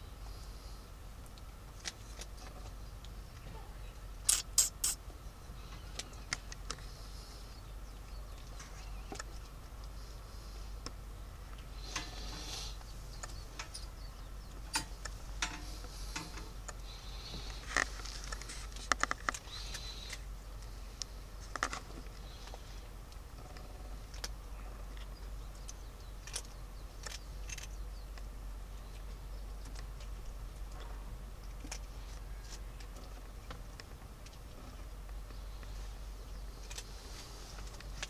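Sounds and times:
kitten claws ticking and scratching: 10.8s - 30.8s.

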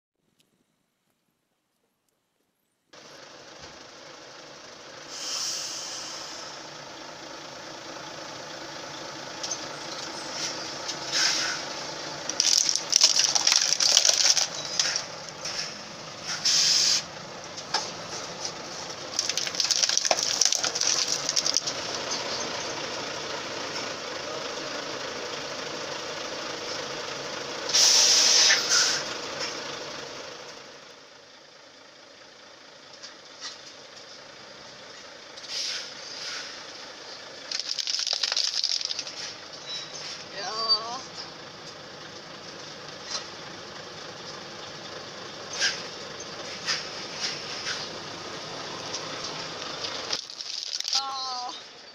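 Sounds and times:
diesel truck engine running: 3.0s - 51.9s
plastic and glass crunching: 12.3s - 15.1s, 19.1s - 22.0s, 37.5s - 39.3s, 49.8s - 51.1s
loud hissing bursts: 16.3s - 17.1s.

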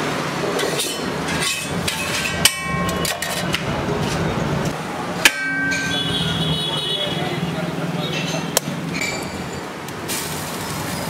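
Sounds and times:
metal spatula scraping griddle: 0.6s - 4.4s
sharp ringing clanks: 1.4s - 3.5s, 5.2s - 6.7s.

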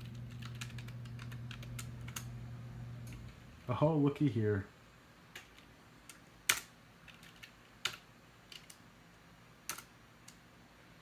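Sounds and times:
computer keyboard key presses: 0.0s - 2.3s.

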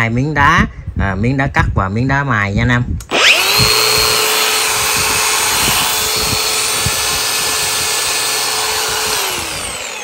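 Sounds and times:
angle grinder running: 3.1s - 10.0s.

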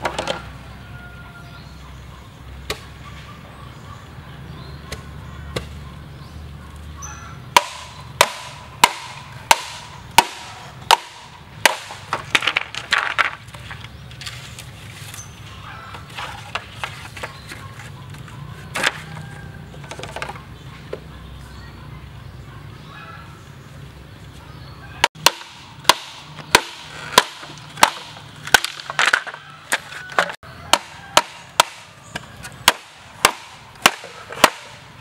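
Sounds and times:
machete chopping bamboo: 4.9s - 5.8s, 7.6s - 13.4s, 25.1s - 34.8s
bamboo cracking and splitting: 7.6s - 15.3s, 15.9s - 20.4s, 25.1s - 34.8s.

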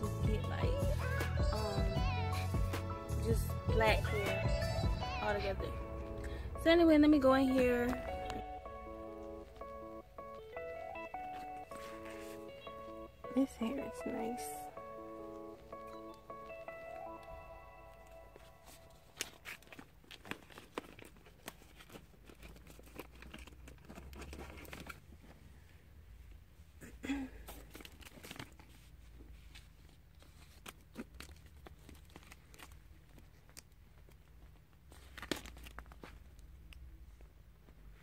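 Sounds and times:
plastic packaging crinkling: 15.2s - 25.3s, 27.5s - 36.8s.

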